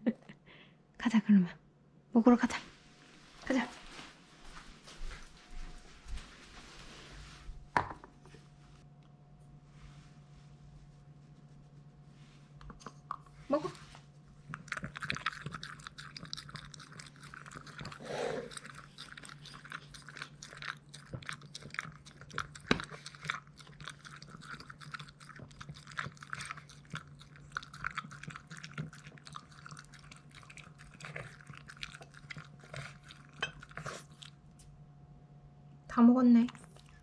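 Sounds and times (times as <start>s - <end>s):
dog lapping water: 14.5s - 34.4s.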